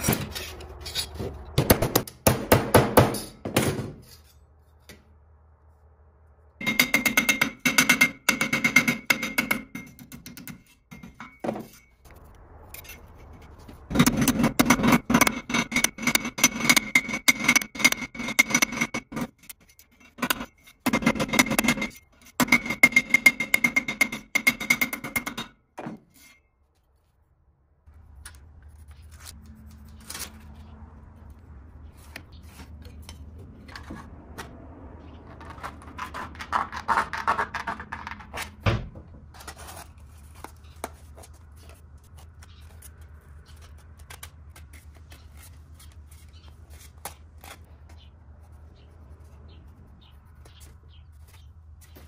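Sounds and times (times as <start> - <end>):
sheet metal scraping and clicking: 12.8 - 25.5.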